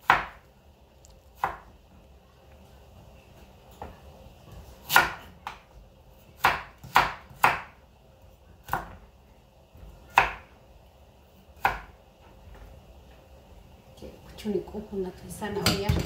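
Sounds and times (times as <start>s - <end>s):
knife chopping on wooden board: 0.0s - 0.4s, 1.4s - 1.6s, 4.8s - 5.6s, 6.4s - 7.8s, 8.6s - 9.0s, 10.1s - 10.5s.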